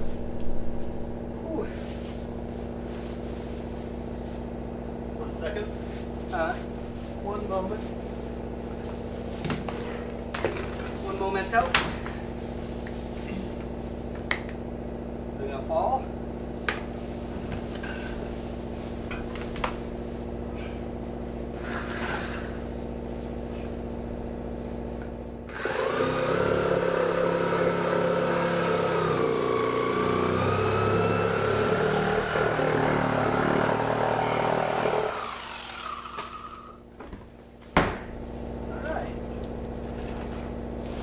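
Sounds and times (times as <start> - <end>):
steady low hum: 0.0 - 25.5, 30.6 - 41.0
reciprocating saw cutting wood: 21.6 - 22.6, 25.5 - 36.8.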